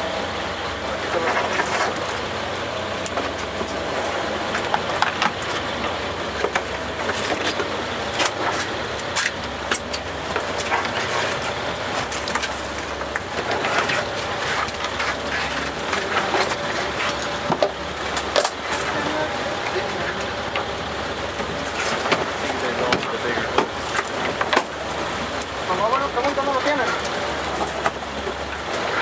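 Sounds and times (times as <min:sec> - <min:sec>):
boat engine humming: 0:00.0 - 0:29.0
water noise: 0:00.0 - 0:29.0
wind: 0:00.0 - 0:29.0.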